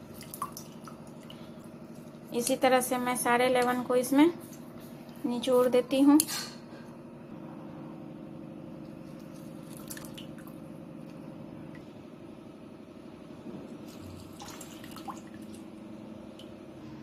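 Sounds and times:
juice dripping into steel bowl: 0.0 - 2.6, 8.8 - 11.9
steady low hum: 0.0 - 17.0.

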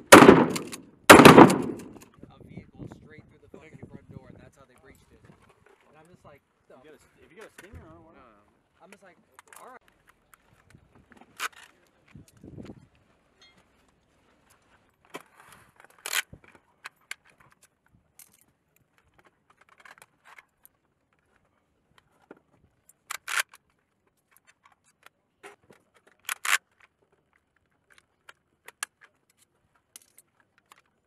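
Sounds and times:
sharp metallic snaps: 0.0 - 2.0
cartridges clicking into rifle magazine: 0.2 - 2.1.

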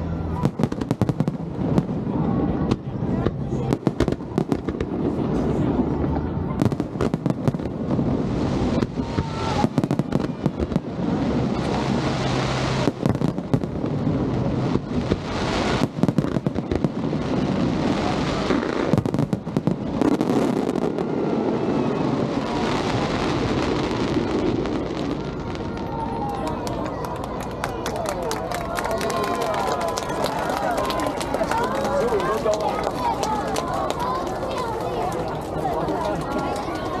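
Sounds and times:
continuous rumble: 0.0 - 37.0
fireworks bangs and crackles: 0.0 - 37.0.

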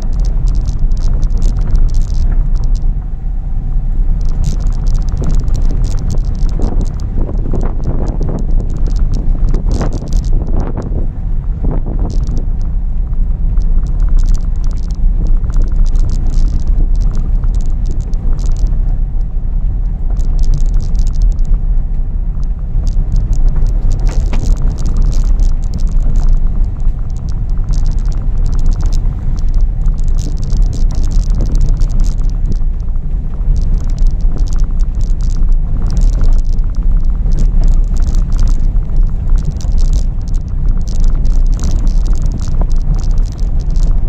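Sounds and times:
car engine and road rumble: 0.0 - 44.0
car knocks and rattles: 0.0 - 44.0.

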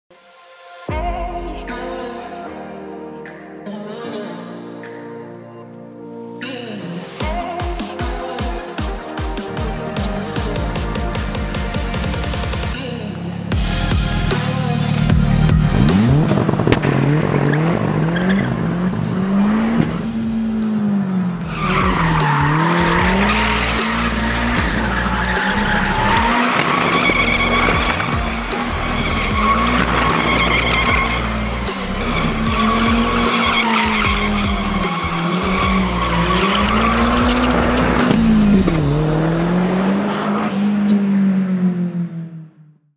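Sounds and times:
background music: 0.1 - 42.4
car engine revving hard: 14.4 - 42.1
tires squealing: 14.5 - 41.4.

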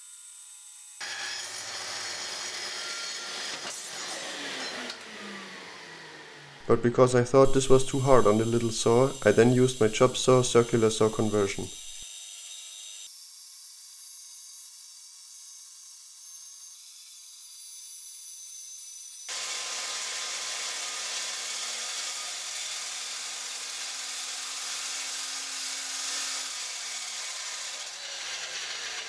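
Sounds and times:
circular saw cutting plywood: 0.9 - 6.6, 7.4 - 13.2, 15.7 - 29.0.

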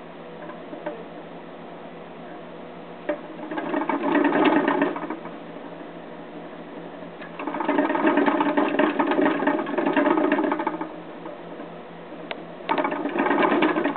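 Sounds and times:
exercise wheel spinning and rattling: 3.1 - 5.7, 7.2 - 11.7, 12.7 - 13.9.

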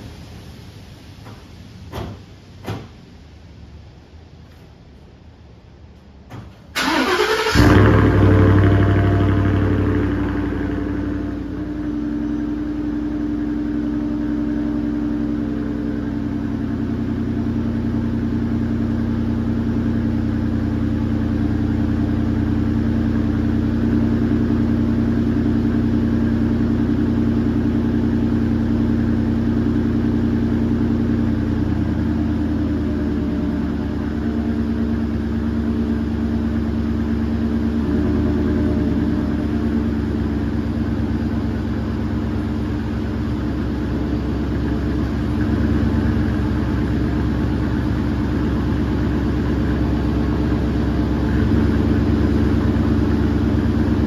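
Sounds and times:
starter motor cranking: 6.8 - 7.8
car engine revving and idling: 6.8 - 54.0.

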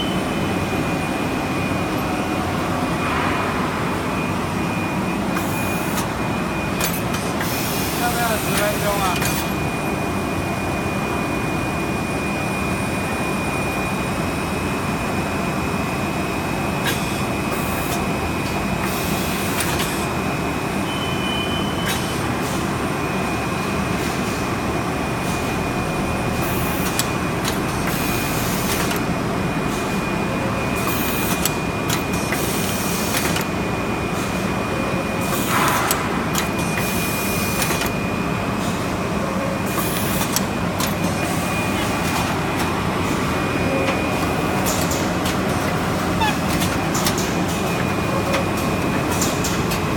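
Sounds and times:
high machine whine: 0.0 - 49.9
box making machine humming: 24.8 - 49.9
machine clicks and knocks: 37.5 - 38.0, 46.5 - 49.9.

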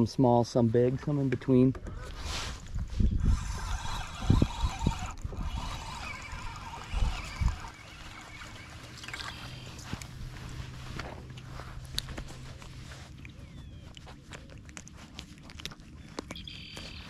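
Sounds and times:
low steady hum: 0.0 - 17.0
water lapping against boat hull: 1.3 - 17.0
sleeve brushing over camera: 2.0 - 13.8.

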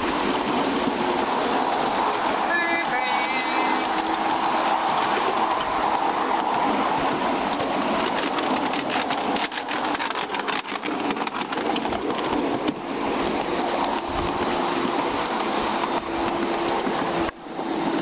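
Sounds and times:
train wheels rumbling on rail: 0.0 - 18.0
rapid clicks and knocks: 7.4 - 12.8.

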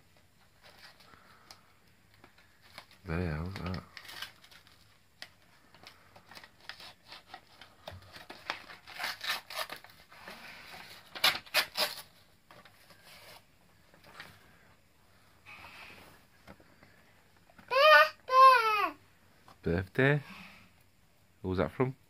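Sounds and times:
paper rustling and tearing: 2.6 - 13.5.

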